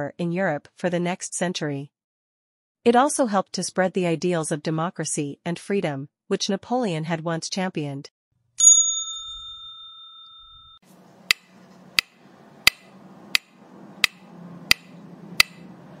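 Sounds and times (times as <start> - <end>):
bright chime: 8.6 - 10.8
sharp evenly spaced clicks: 11.3 - 15.7.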